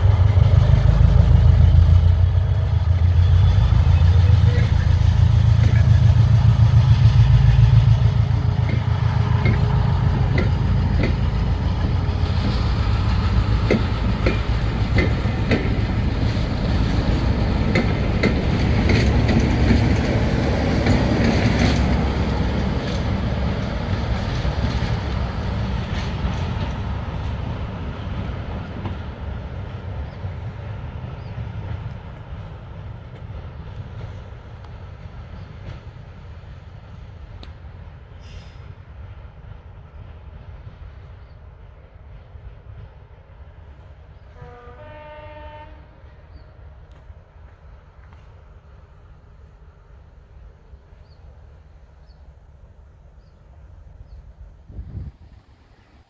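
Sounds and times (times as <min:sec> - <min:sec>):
diesel engine drone: 0:00.0 - 0:18.2
train wheels clicking on rails: 0:00.0 - 0:44.4, 0:46.8 - 0:49.4.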